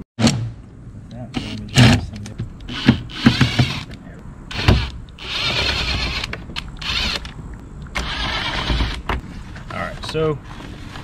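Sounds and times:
cordless driver whining: 0:02.6 - 0:09.1.

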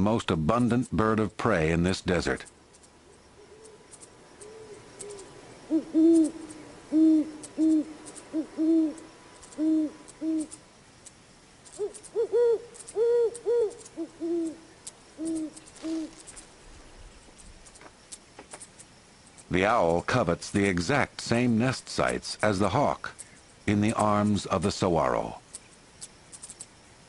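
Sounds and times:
owl hooting: 0:03.0 - 0:10.6, 0:11.7 - 0:16.5
higher-pitched owl hoots: 0:03.1 - 0:10.6, 0:11.8 - 0:16.2.

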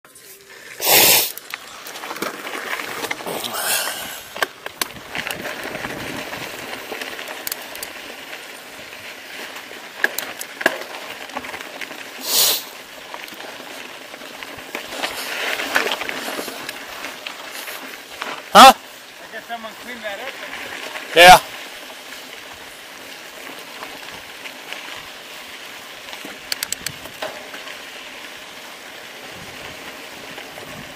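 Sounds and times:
bike rattling: 0:00.1 - 0:30.9
bike tyres on loose gravel: 0:00.1 - 0:30.9
stones clicking and knocking: 0:26.3 - 0:27.4.

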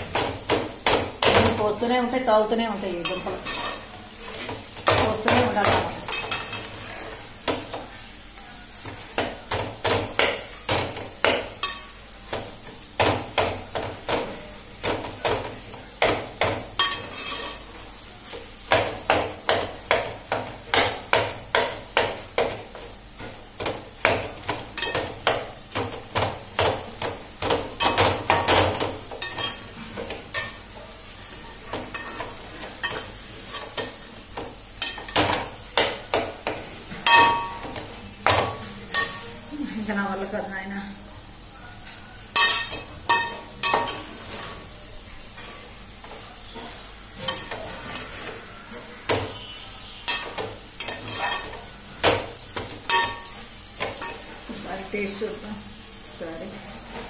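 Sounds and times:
metal spoon scraping a pot: 0:03.0 - 0:04.4, 0:16.8 - 0:17.6, 0:46.7 - 0:48.5, 0:49.4 - 0:51.6.

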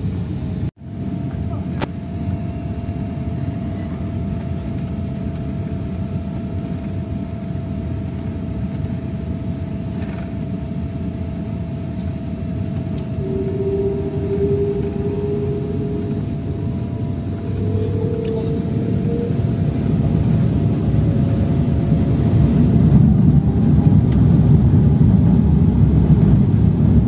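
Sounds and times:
deep engine rumble: 0:00.0 - 0:27.0
steady whine: 0:00.0 - 0:27.0
bright rising tone: 0:13.0 - 0:21.2.

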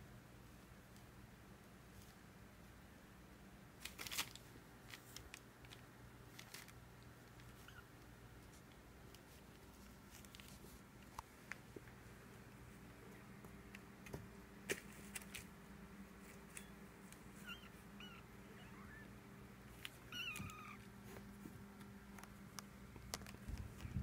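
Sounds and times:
kittens mewing: 0:17.3 - 0:19.2, 0:19.8 - 0:20.9.

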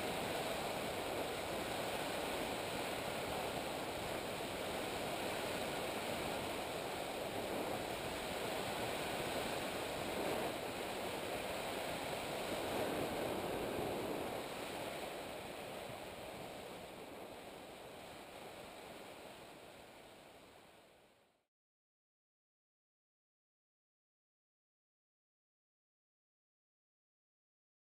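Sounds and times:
aircraft engine and propeller rushing: 0:00.0 - 0:18.6
wind on microphone: 0:00.0 - 0:20.3.

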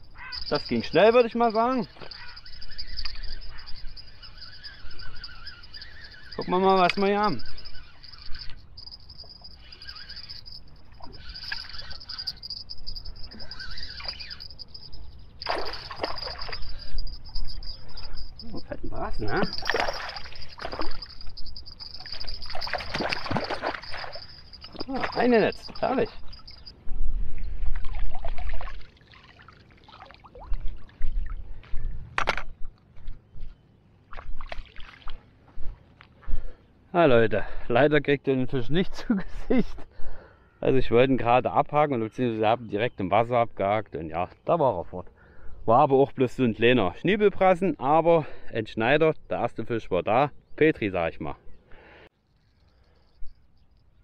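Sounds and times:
fishing reel winding: 0:00.0 - 0:26.7
high insect chirring: 0:00.0 - 0:26.9
water splashing and trickling: 0:00.0 - 0:31.6, 0:34.1 - 0:35.4
handling clicks and knocks: 0:32.1 - 0:32.8.

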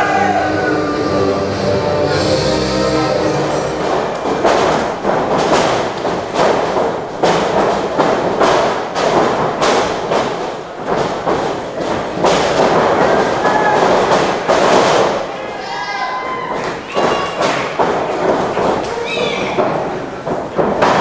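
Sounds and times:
music: 0:00.0 - 0:04.5
thuds of blows and bodies landing: 0:04.0 - 0:15.2.

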